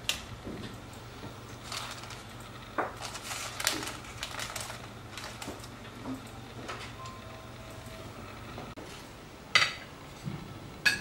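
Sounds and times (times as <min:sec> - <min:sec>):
baking paper crinkling: 0:01.5 - 0:05.9.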